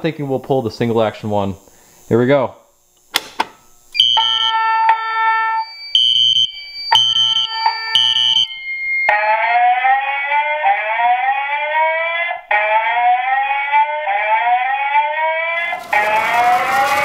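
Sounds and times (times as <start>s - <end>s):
steady alarm tone: 3.9s - 17.0s
pulsing fire alarm horn: 4.0s - 17.0s
rising whoop alarm tone: 4.0s - 17.0s.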